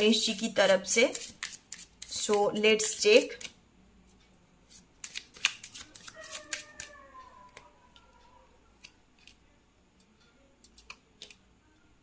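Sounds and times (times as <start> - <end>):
cards being shuffled: 1.0 - 2.6, 4.7 - 6.9, 10.6 - 11.4.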